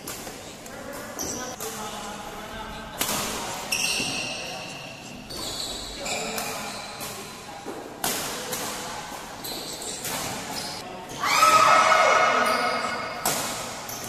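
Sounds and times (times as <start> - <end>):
racket hitting shuttlecock: 6.3 - 9.2, 13.0 - 14.0.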